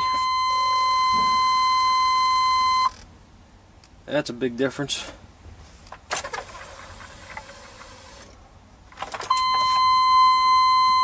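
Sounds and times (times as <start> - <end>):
steady electronic beep: 0.0 - 2.9, 9.3 - 11.0.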